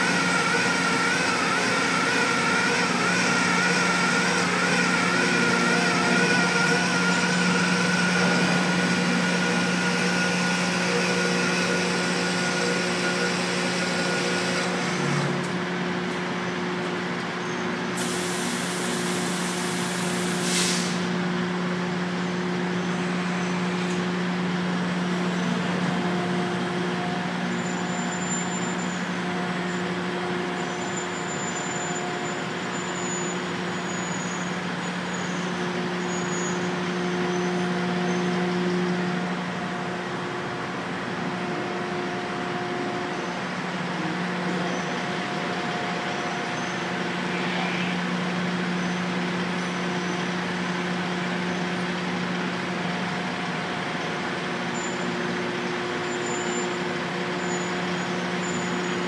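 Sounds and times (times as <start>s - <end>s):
sharp hiss of air: 18.0s - 21.2s
machinery hum: 21.0s - 59.0s.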